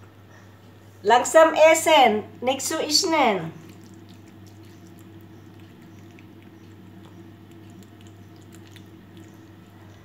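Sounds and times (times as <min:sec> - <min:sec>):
low steady hum: 0:00.0 - 0:10.0
cat chewing and smacking: 0:03.6 - 0:10.0.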